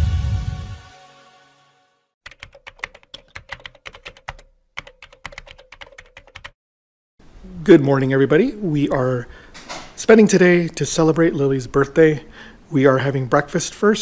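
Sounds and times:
rapid keyboard key clicks: 2.3s - 6.6s.

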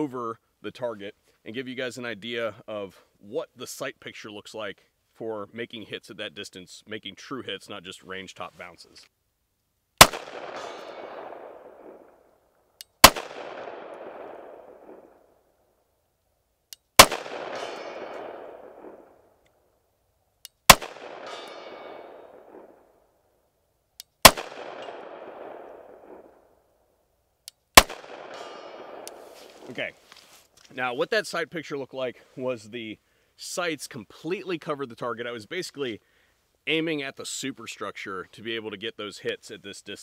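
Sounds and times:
pistol shots with echo: 10.0s - 12.2s, 13.0s - 15.2s, 17.0s - 19.1s, 20.7s - 22.8s, 24.2s - 26.4s, 27.8s - 29.3s.

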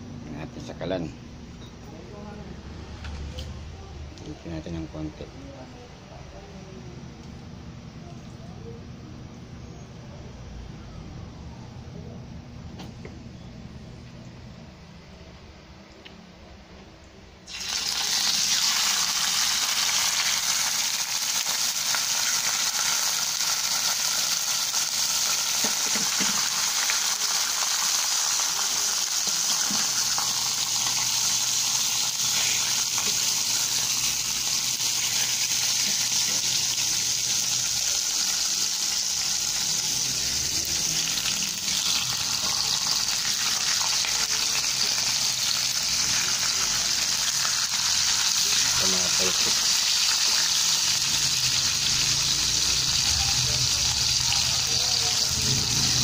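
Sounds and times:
meat sizzling in hot oil: 17.5s - 56.0s.

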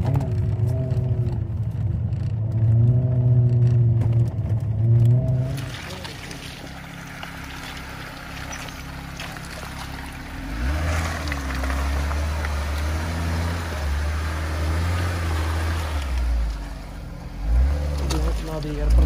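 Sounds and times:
engine revving under load: 2.5s - 19.0s
tyre spinning in mud: 5.4s - 13.7s.

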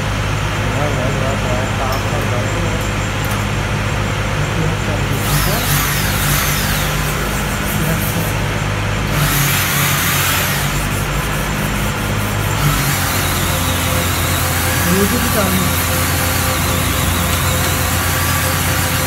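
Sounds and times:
electric drill running: 5.2s - 8.2s, 9.1s - 19.0s
metal rasping scrape: 5.2s - 8.4s, 9.1s - 19.0s.

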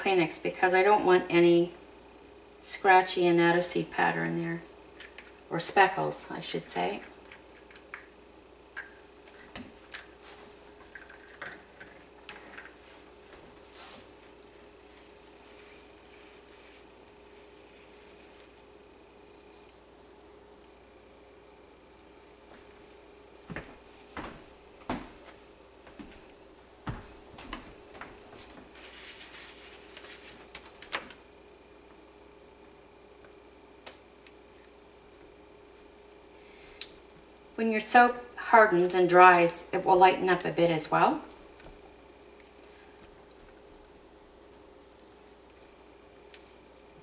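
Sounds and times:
steady faint hum: 0.0s - 47.0s
tissue rustling: 12.8s - 18.4s, 28.4s - 30.8s.

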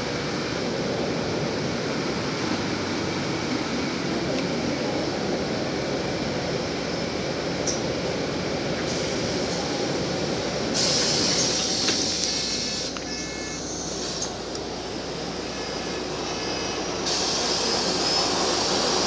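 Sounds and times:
bus engine and road rumble: 0.0s - 19.0s
loud high hiss: 10.7s - 14.4s, 15.4s - 19.0s.

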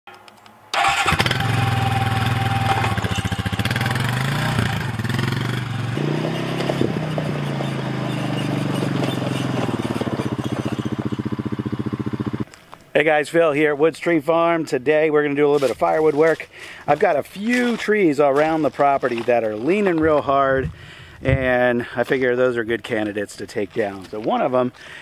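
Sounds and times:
atv engine running: 0.8s - 12.5s.

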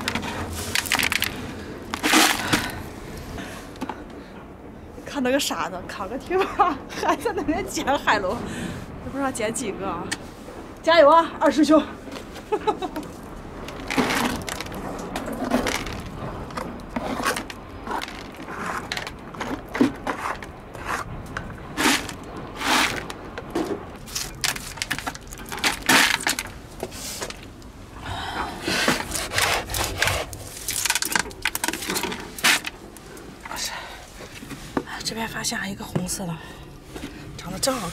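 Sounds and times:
scraping on rock: 13.7s - 21.1s.

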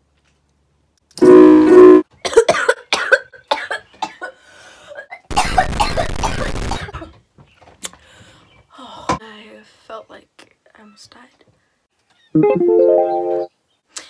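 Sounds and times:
woman coughing: 2.2s - 4.4s, 5.0s - 7.2s.

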